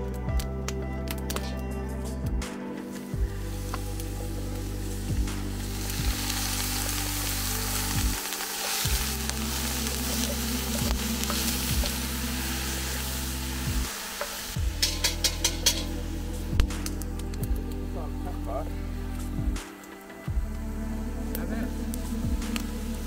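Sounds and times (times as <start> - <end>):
soft background music: 0.0 - 23.0
meat sizzling in a pot: 2.9 - 18.0.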